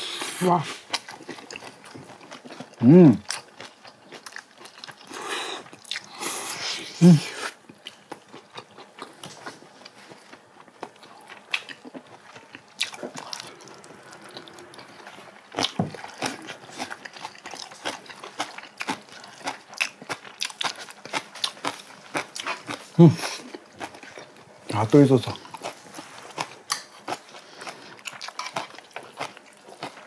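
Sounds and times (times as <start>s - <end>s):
chewing and biting: 7.7s - 24.4s, 25.2s - 30.0s.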